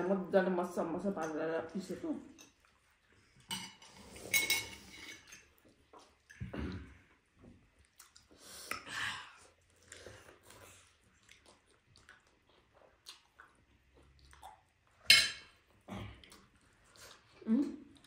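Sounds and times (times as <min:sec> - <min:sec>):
chewing and biting food: 0:07.7 - 0:08.4, 0:09.6 - 0:15.0.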